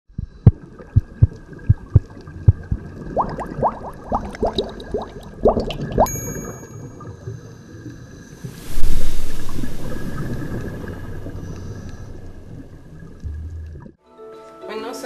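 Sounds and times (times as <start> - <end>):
rising bubbly blips: 0.1 - 7.3, 8.4 - 14.0
low underwater plops: 0.1 - 14.0
high steady ringing tone: 6.1 - 7.6.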